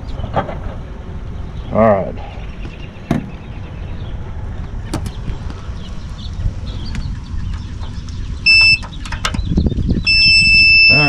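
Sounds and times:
multimeter continuity beep: 8.4 - 8.8, 10.0 - 11.0.

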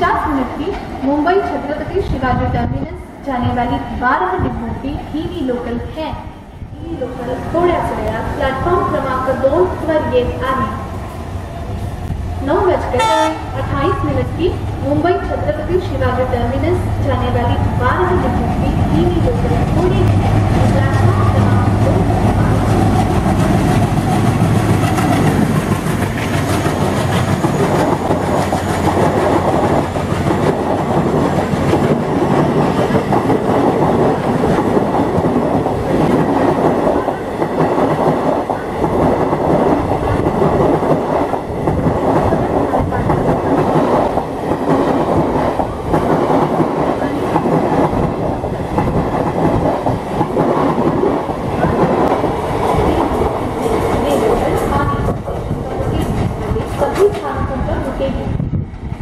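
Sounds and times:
diesel locomotive engine drone: 0.0 - 59.0
train wheels clickety-clack: 18.0 - 58.8.

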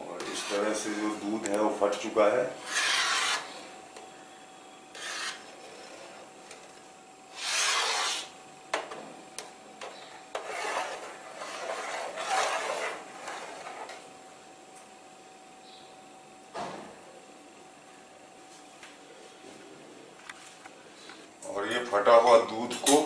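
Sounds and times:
metal ladle scraping a pot: 2.6 - 3.5, 5.0 - 6.2, 10.4 - 13.9.

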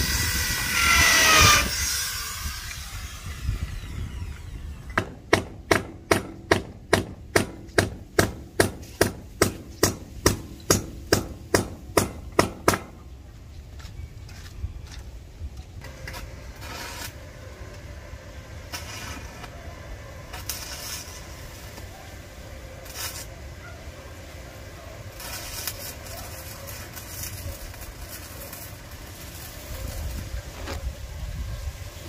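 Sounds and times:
wind buffeting microphone: 0.0 - 5.2
bursts of hiss: 15.8 - 32.0.

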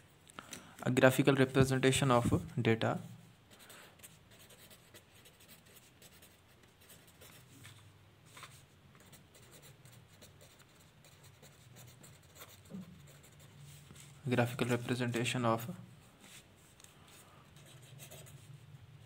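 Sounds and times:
pen scratching on paper: 3.6 - 7.6, 8.3 - 14.2, 17.1 - 18.6.

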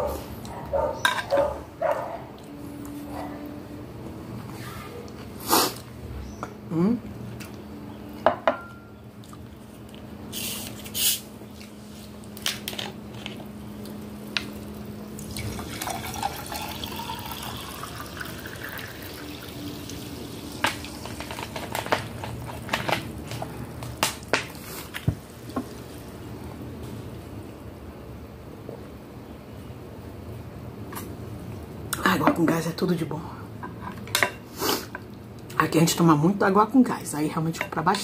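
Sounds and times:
sparkling water pouring into glass: 15.2 - 20.6.

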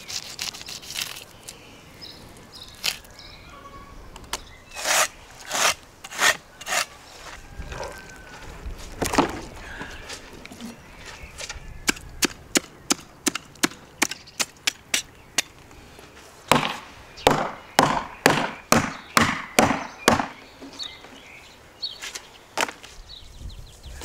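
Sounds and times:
knife scraping fish scales: 0.0 - 1.3, 4.7 - 6.9.

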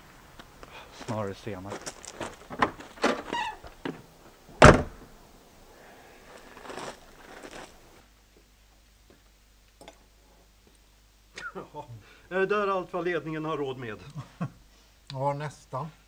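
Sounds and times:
faint noises: 0.0 - 8.5
loud thump: 4.6 - 5.1.

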